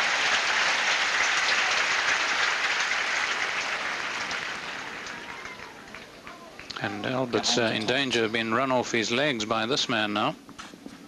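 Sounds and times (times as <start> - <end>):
crowd applauding: 0.0 - 8.7.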